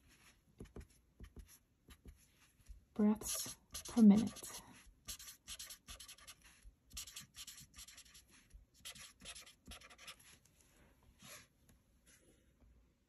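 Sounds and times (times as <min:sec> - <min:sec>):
pen scratching on paper: 0:03.2 - 0:10.4.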